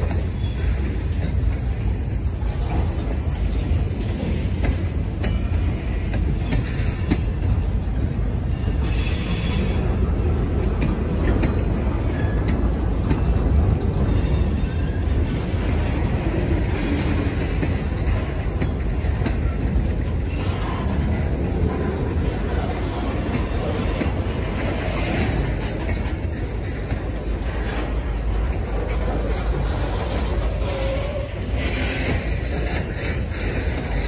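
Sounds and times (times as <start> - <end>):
train wheels rumbling on rails: 0.0 - 34.0
high wheel squeal: 8.5 - 9.9.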